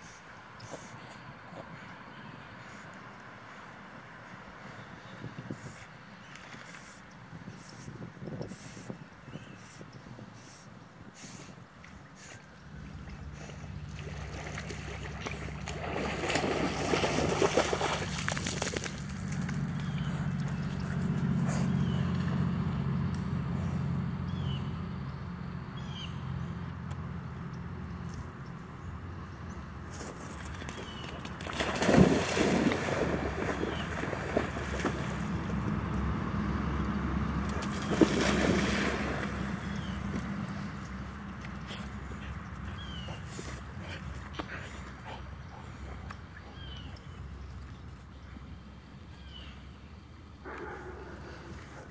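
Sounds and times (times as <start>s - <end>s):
wind rumble on microphone: 5.0s - 5.9s, 7.2s - 11.1s
dog splashing through water: 12.8s - 22.6s, 30.0s - 36.1s, 37.1s - 45.0s.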